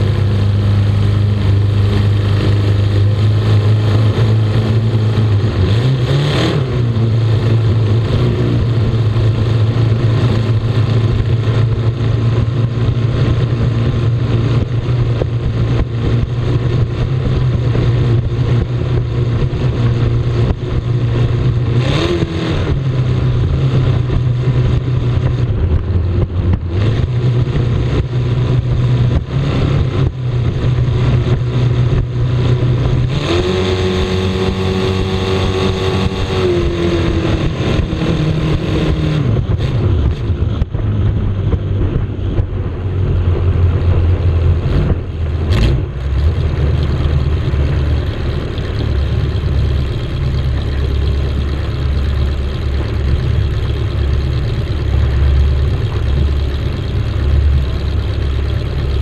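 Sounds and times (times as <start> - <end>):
powerboat engine running hard: 0.0 - 59.0
rush of wind and water: 0.0 - 59.0.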